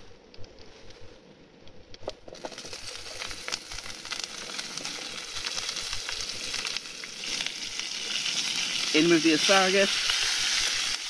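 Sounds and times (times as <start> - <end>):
asparagus sizzling in butter: 2.3 - 11.0.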